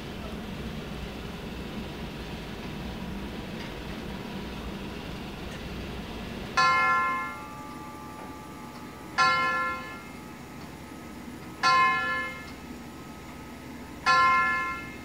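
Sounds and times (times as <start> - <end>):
grandfather clock striking: 6.5 - 12.9, 14.0 - 15.0.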